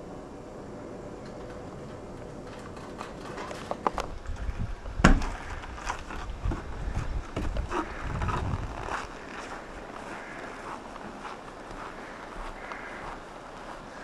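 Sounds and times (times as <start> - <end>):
footsteps on packed snow: 5.8 - 14.0.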